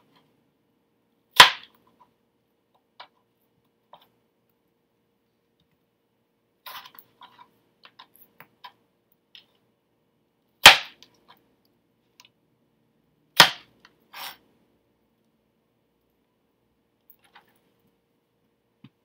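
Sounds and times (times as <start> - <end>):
knife scraping: 6.6 - 7.6, 14.1 - 14.4.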